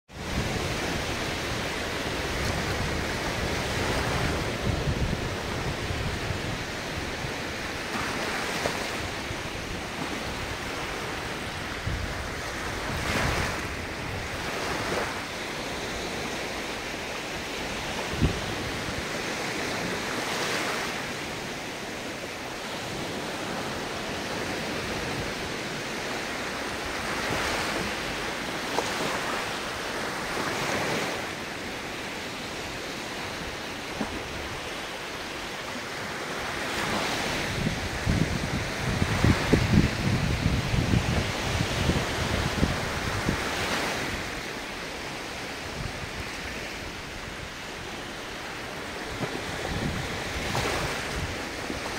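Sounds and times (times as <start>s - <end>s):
wind: 0.0s - 51.9s
ocean waves washing ashore: 0.1s - 51.9s.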